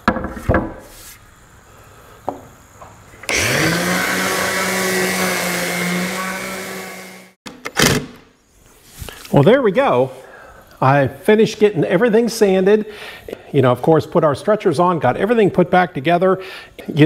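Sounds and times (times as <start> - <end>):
orbital sander running: 3.3 - 7.4.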